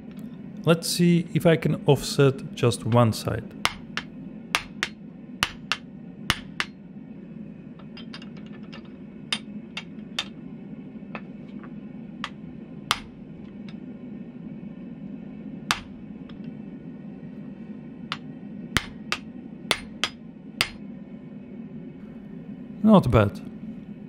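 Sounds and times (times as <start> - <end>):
steady low hum: 0.0 - 24.0
hammer striking metal die: 3.6 - 6.7, 12.2 - 13.2, 15.7 - 15.9, 18.1 - 20.8.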